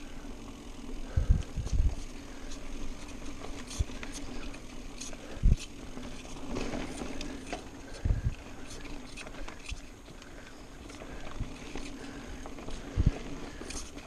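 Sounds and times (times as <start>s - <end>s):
bike tyres rumbling on dirt: 0.0s - 14.0s
bike rattling clicks: 0.4s - 14.0s.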